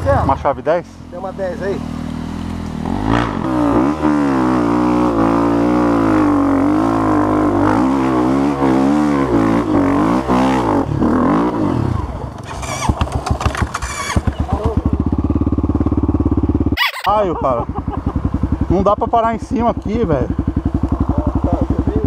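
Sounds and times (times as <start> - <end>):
dirt bike engine revving: 1.0 - 22.0
sharp knocks and clatters: 12.9 - 14.7.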